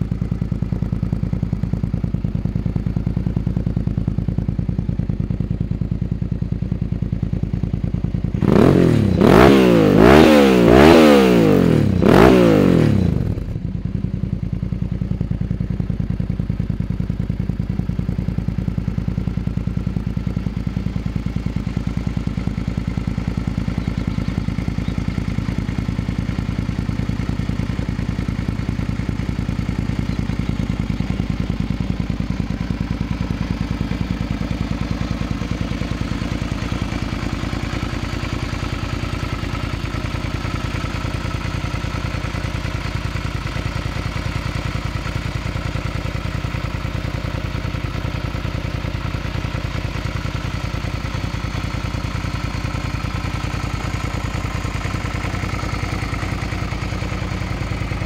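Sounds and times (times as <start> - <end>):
motorcycle engine idling: 0.0 - 58.0.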